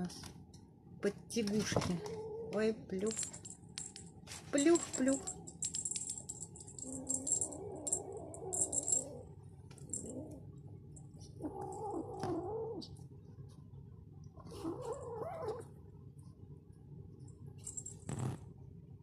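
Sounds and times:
cat litter pellets rattling: 0:03.0 - 0:09.2
kitten growling: 0:06.8 - 0:09.3, 0:11.4 - 0:12.9.

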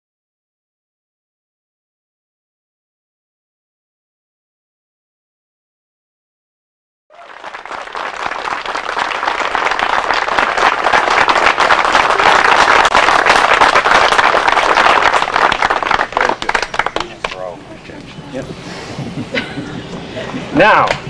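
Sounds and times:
crowd applauding: 0:07.1 - 0:17.6.

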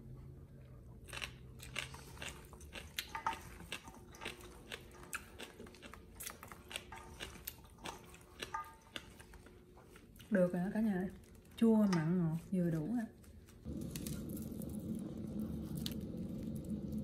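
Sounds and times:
person chewing crunchy food: 0:00.8 - 0:10.3, 0:13.2 - 0:17.0.

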